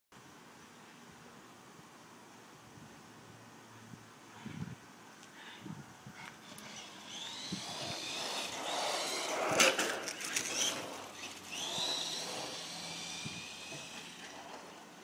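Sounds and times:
toy car electric motor whining: 0:06.4 - 0:14.9.

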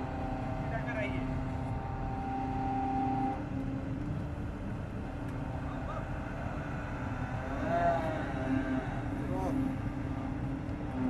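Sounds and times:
crane engine rumbling: 0:00.0 - 0:11.0.

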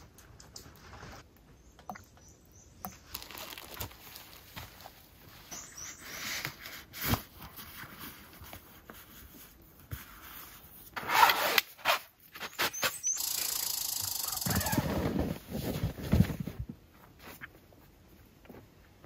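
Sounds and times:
nylon gear rustling: 0:03.0 - 0:12.9.

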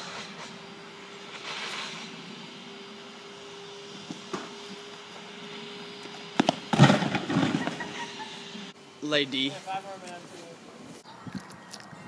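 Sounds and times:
sharp crack and crash: 0:06.4 - 0:07.9.

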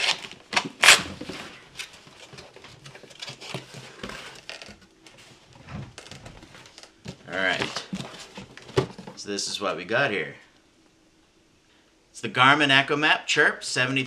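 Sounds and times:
cardboard scraping and rustling: 0:00.0 - 0:09.2.

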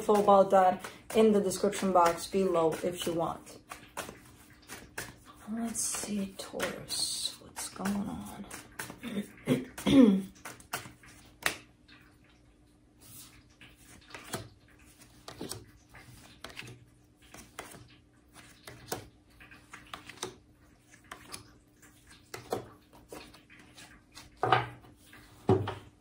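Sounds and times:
cards tapping and sliding on wood: 0:03.7 - 0:05.3, 0:13.8 - 0:20.4.

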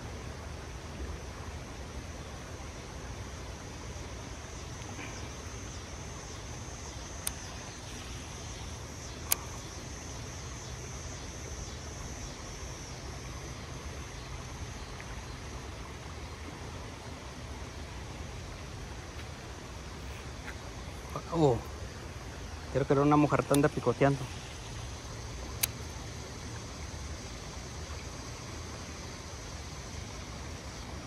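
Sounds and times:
high insect drone: 0:00.0 - 0:31.0
sharp clicks: 0:07.1 - 0:08.2, 0:09.1 - 0:09.7, 0:23.4 - 0:24.4, 0:25.5 - 0:26.0.

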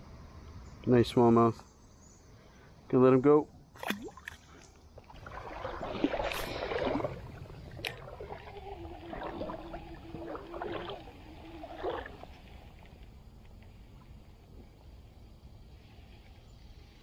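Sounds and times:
water sloshing and splashing: 0:03.8 - 0:14.7.

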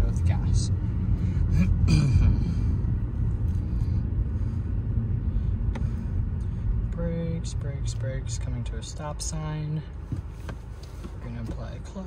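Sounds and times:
car engine rumble: 0:00.0 - 0:12.0
road noise: 0:00.0 - 0:12.0.

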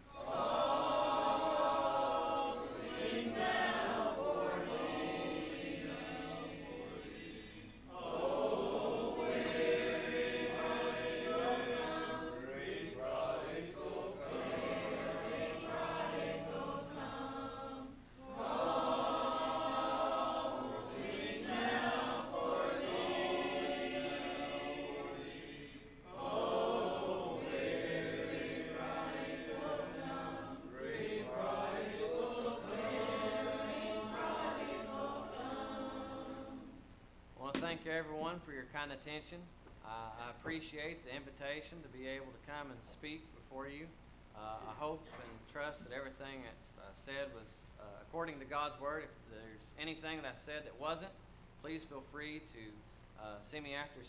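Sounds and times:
congregation singing a hymn: 0:00.0 - 0:36.8.

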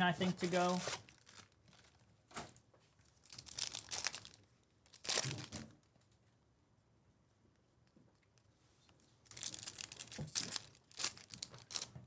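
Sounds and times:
foil wrapper crinkling and tearing: 0:00.2 - 0:02.0, 0:03.1 - 0:05.8, 0:09.2 - 0:12.0.

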